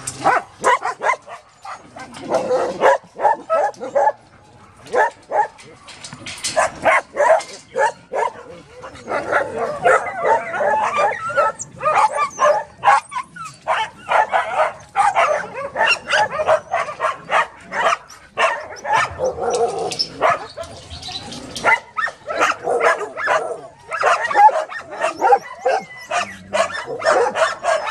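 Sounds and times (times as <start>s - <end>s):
dogs barking: 0.2s - 5.8s, 6.4s - 20.9s, 21.6s - 27.9s.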